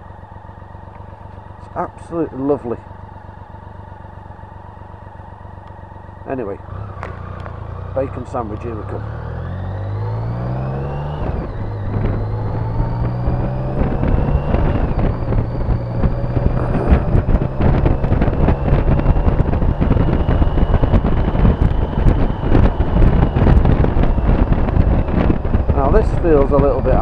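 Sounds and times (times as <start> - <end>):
motorcycle engine accelerating: 0.0 - 27.0
wind buffeting microphone: 9.7 - 27.0.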